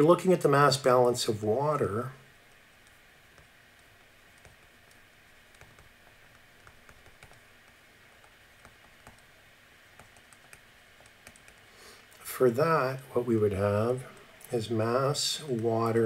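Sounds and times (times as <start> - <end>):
low steady hiss: 0.0 - 16.0
stylus tapping on tablet: 3.4 - 9.3, 10.0 - 11.7.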